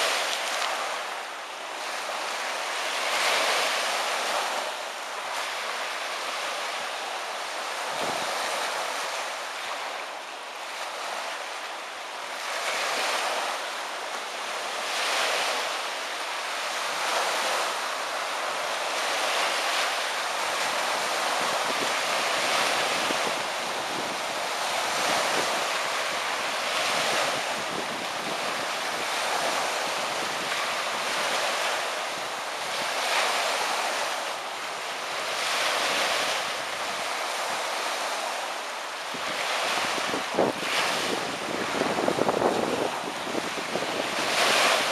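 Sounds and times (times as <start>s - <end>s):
waves washing in: 0.0s - 44.9s
wind on microphone: 7.8s - 9.2s, 20.6s - 34.2s, 39.0s - 44.9s.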